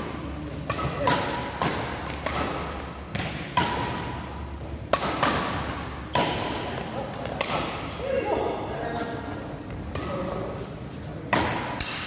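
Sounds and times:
rackets hitting shuttlecock: 0.0s - 8.1s, 11.3s - 12.0s.

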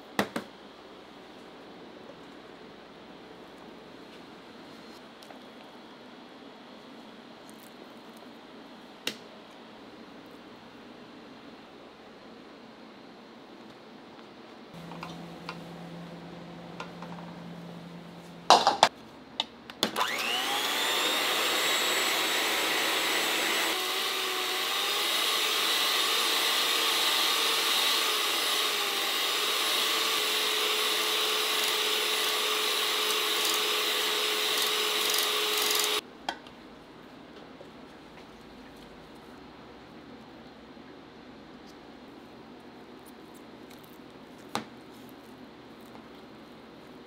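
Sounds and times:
kitchen machine motor running: 14.8s - 18.8s, 20.0s - 36.0s.

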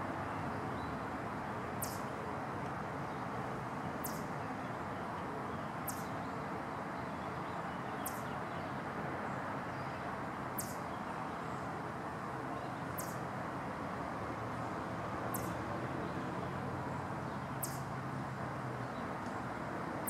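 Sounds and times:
chipmunk alarm chucks: 1.8s - 2.1s, 4.0s - 4.3s.

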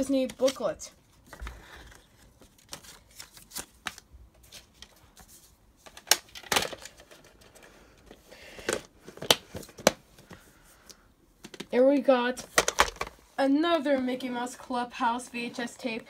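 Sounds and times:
plastic cases clicking and knocking: 11.4s - 11.7s, 12.5s - 13.2s.

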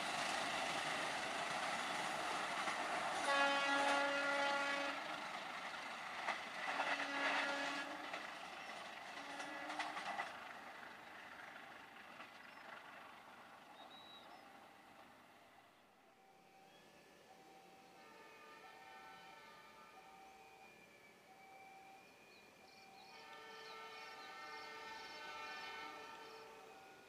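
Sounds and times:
train wheel clacks: 0.0s - 13.6s
train rumble and wheel noise: 0.0s - 27.0s
locomotive horn blasts: 3.2s - 5.2s, 6.7s - 8.1s, 9.2s - 10.1s, 18.0s - 20.0s, 23.1s - 27.0s.

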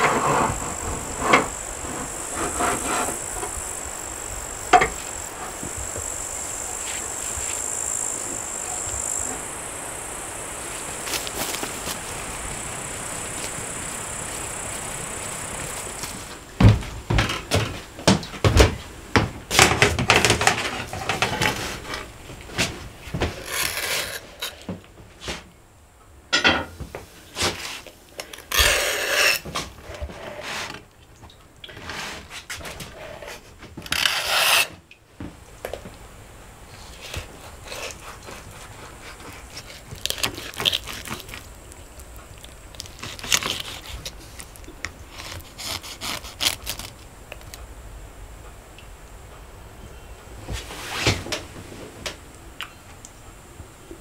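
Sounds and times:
skewers scraping out of meat: 23.3s - 24.6s, 28.4s - 29.5s, 36.8s - 47.0s.

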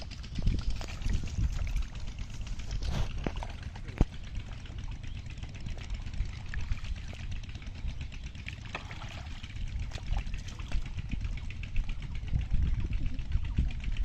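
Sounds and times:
muddy water sloshing: 0.0s - 14.0s
small splashes and squelches: 0.5s - 11.0s.

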